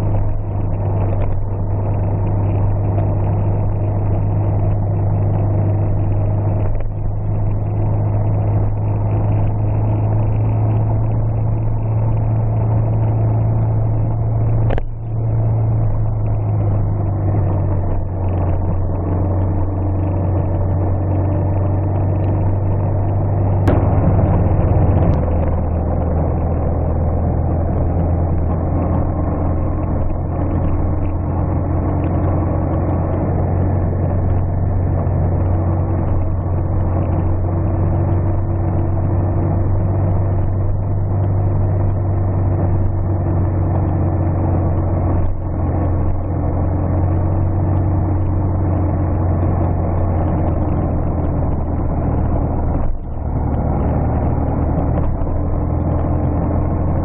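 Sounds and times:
car engine droning: 0:00.0 - 0:57.0
sharp knock: 0:23.7 - 0:25.3.

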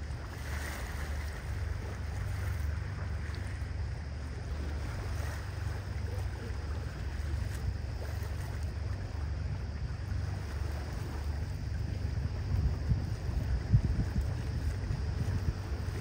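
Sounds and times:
boat engine drone: 0:00.0 - 0:16.0
water rushing: 0:00.0 - 0:16.0
wind on microphone: 0:00.0 - 0:16.0.

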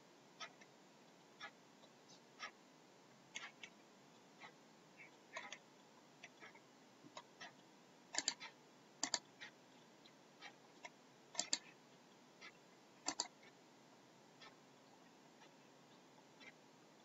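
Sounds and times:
mouse button clicking: 0:11.4 - 0:11.6.

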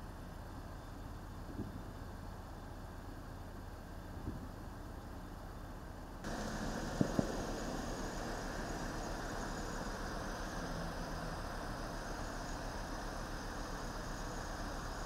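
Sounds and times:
suv engine idling: 0:00.0 - 0:15.0.

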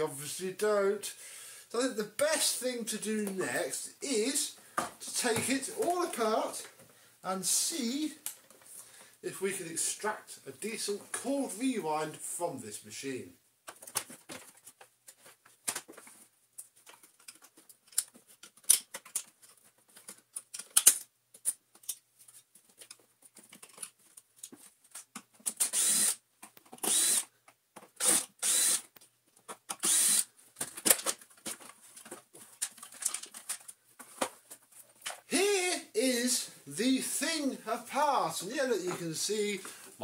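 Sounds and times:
cordless drill-driver whirring: 0:25.6 - 0:26.2, 0:26.8 - 0:27.3, 0:28.0 - 0:28.9, 0:29.8 - 0:30.3.

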